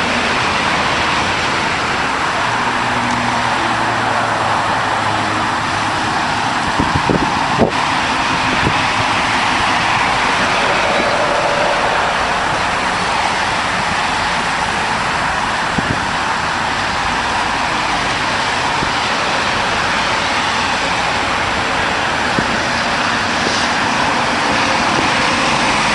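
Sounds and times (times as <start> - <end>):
highway traffic roar: 0.0 - 25.9.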